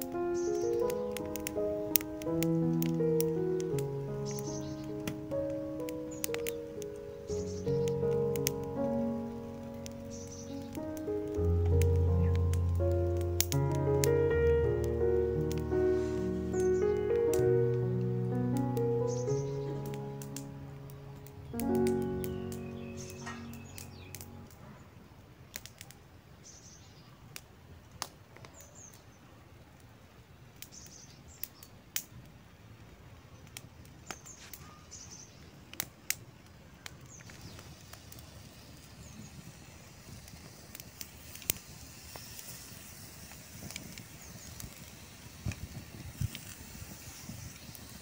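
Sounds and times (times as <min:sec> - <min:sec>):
birds chirping: 0:00.0 - 0:24.9.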